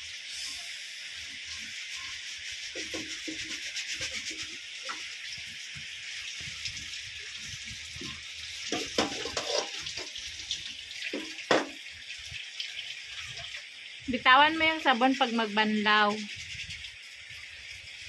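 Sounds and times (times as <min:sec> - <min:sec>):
tap water running into sink: 0:01.2 - 0:18.0
metal pots and plates clattering: 0:08.7 - 0:10.1.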